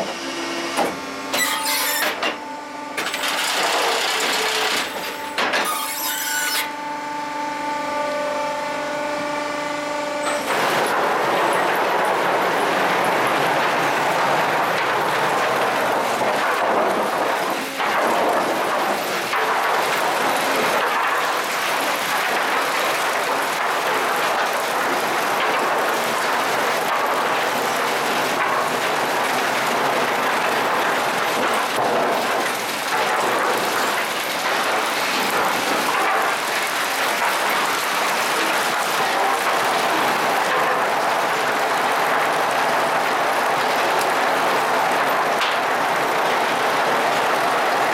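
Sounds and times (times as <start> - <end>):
chain conveyor mechanical clatter: 3.0 - 6.5, 10.2 - 47.9.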